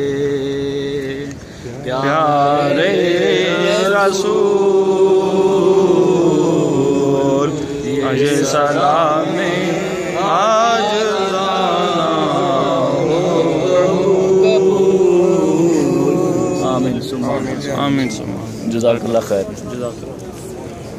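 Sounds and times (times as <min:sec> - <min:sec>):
person chanting a devotional song: 0:00.0 - 0:18.2
steady held drone: 0:00.0 - 0:18.8.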